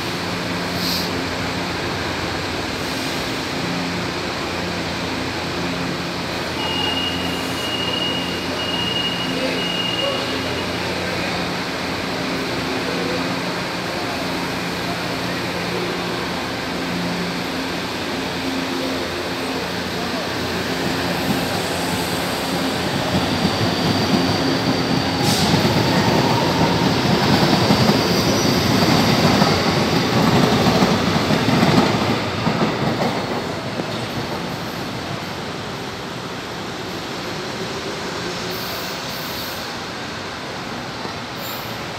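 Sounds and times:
train wheels rumbling on rails: 0:00.0 - 0:41.9
train air conditioning hiss: 0:00.6 - 0:01.3.

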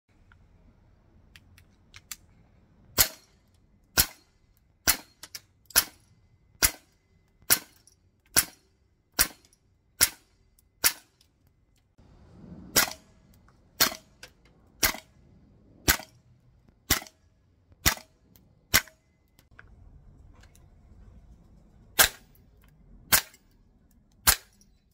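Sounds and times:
airsoft rifle shots: 0:06.6 - 0:06.9, 0:07.5 - 0:09.4, 0:10.0 - 0:11.1, 0:12.7 - 0:13.1, 0:13.8 - 0:14.2, 0:14.8 - 0:15.1, 0:15.8 - 0:16.2, 0:16.8 - 0:17.2, 0:17.8 - 0:19.0, 0:22.0 - 0:22.3, 0:24.2 - 0:24.5.

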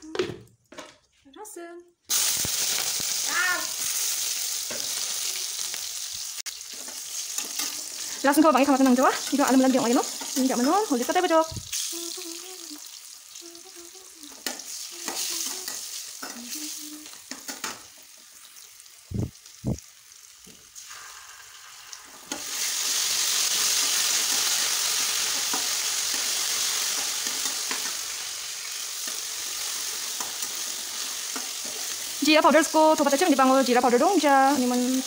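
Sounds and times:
shallots frying in oil: 0:02.1 - 0:35.0
metal spatula scraping a pan: 0:06.6 - 0:08.2.

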